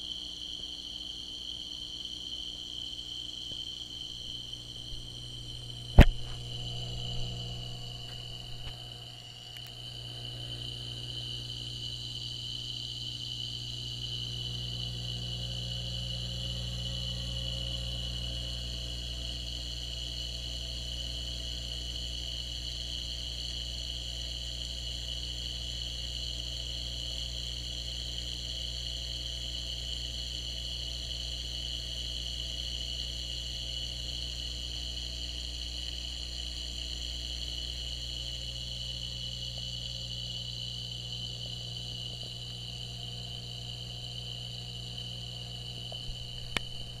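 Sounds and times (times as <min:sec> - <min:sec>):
aquarium pump hum: 0:00.0 - 0:47.0
high whine: 0:03.4 - 0:19.4, 0:39.3 - 0:47.0
sharp clicks: 0:45.9 - 0:46.9.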